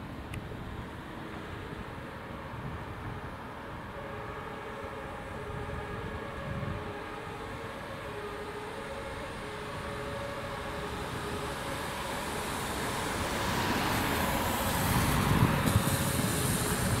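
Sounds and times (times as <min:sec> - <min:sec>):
vehicle approaching: 0:00.0 - 0:17.0.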